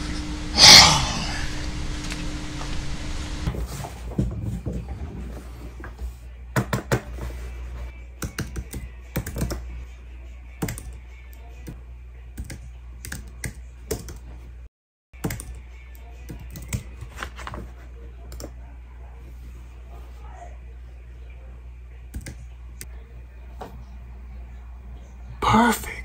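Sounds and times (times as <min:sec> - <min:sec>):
computer keyboard typing: 0:16.3 - 0:16.9.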